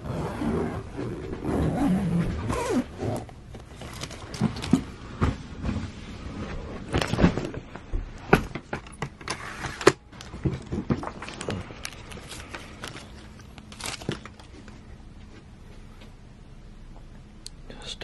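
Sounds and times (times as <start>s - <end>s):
zipper clicks and knocks: 0.0s - 4.8s
fabric bags rustling: 0.1s - 5.1s, 10.2s - 14.8s.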